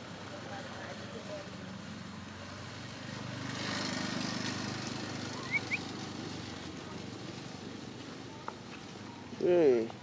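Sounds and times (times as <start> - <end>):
short high chirps: 5.4 - 5.9.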